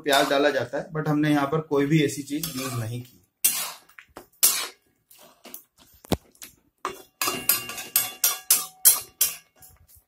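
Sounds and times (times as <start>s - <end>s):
spatula scraping a wok: 0.0s - 0.6s, 2.3s - 5.5s, 6.8s - 10.0s.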